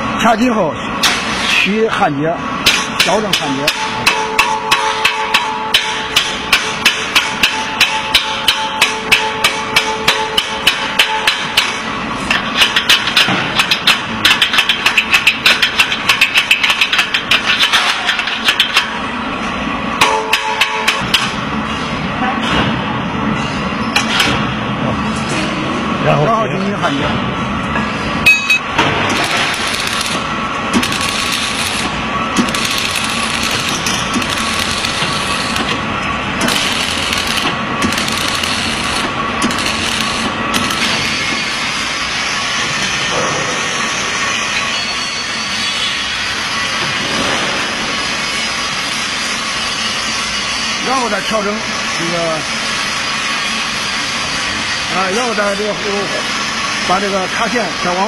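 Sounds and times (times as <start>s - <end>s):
steady hum: 0.0s - 44.7s
hammer blows: 2.6s - 18.2s
arc welding crackling hiss: 29.1s - 35.8s, 36.4s - 42.2s.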